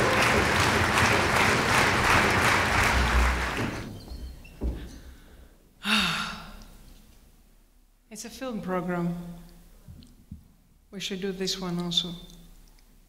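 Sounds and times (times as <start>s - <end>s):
audience applauding: 0.0s - 4.0s.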